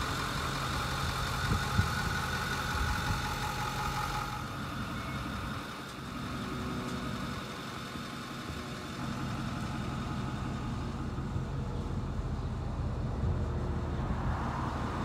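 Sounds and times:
truck engine idling: 0.0 - 15.0.

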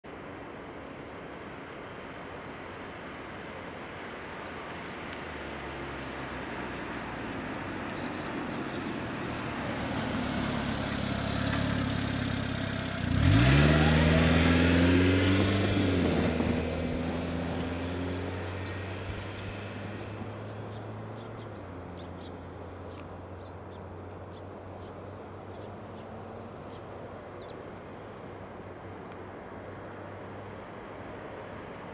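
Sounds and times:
vehicle engine revving: 5.4 - 22.9.

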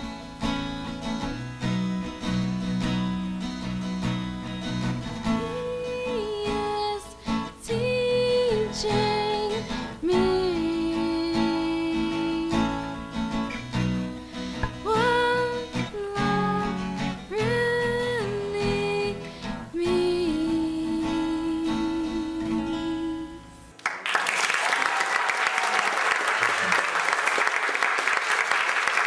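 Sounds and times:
strummed acoustic guitar: 0.0 - 23.8
woman singing: 5.2 - 13.2, 14.6 - 23.7
applause: 23.8 - 29.0.

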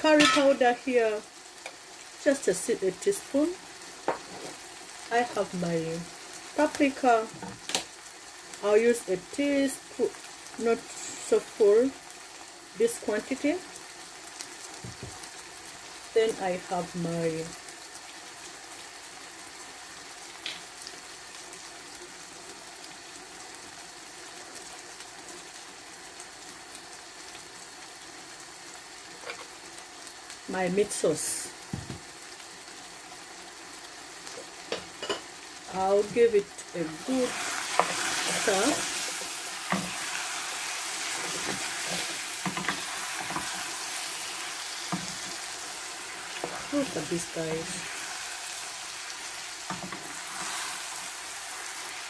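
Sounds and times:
stew simmering in a pan: 0.0 - 52.0
wooden spoon knocking on pan: 4.0 - 4.4, 14.8 - 15.2, 31.7 - 32.1.

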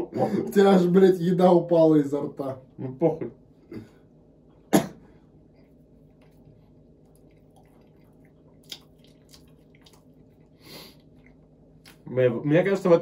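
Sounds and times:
chewing and eating noises: 5.5 - 12.1.

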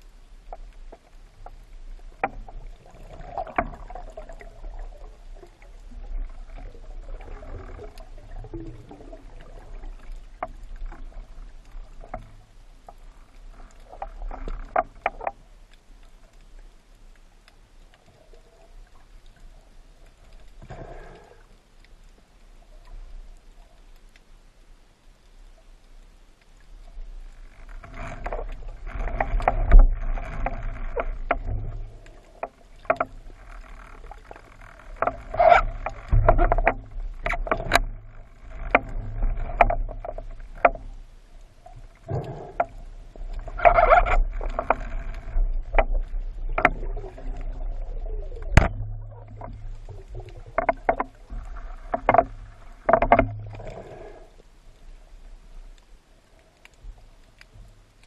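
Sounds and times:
underwater water swishing: 0.0 - 58.0
sharp clicks and knocks: 27.6 - 41.0, 42.1 - 47.6, 48.4 - 53.7.

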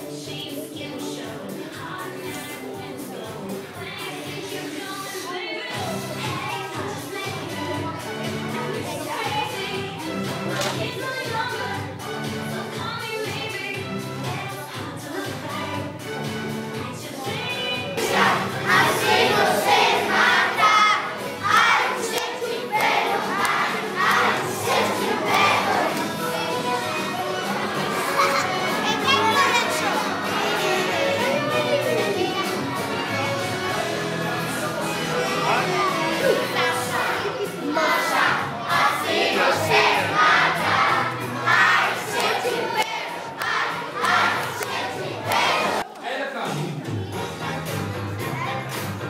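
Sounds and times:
music: 0.0 - 49.0
children shouting and cheering: 4.0 - 11.8, 17.1 - 46.0.

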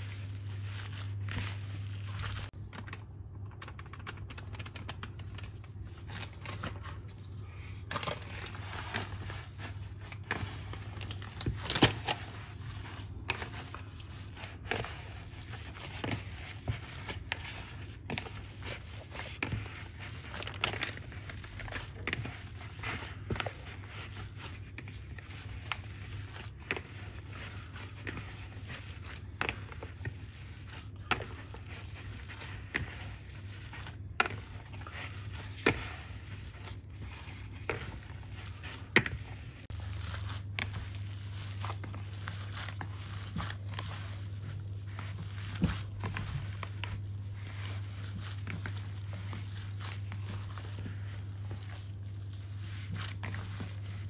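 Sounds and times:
low steady hum: 0.0 - 54.0.

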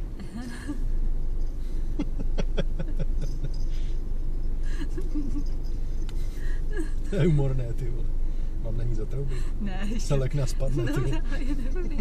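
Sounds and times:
car engine idling hum: 0.0 - 12.0
person chuckling: 2.0 - 3.7.

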